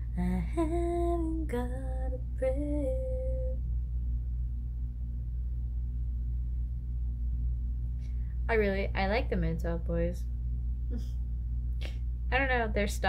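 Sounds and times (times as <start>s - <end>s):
woman singing a note: 0.0s - 3.6s
steady low hum: 0.0s - 13.0s.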